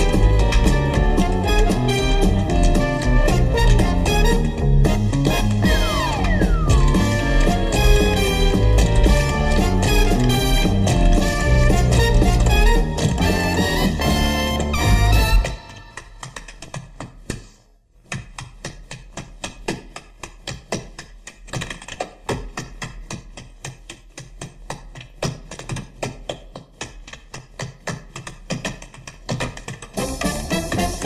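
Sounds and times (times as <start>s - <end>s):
swing band playing: 0.0s - 15.8s, 29.9s - 31.0s
tap shoes on stage floor: 0.0s - 31.0s.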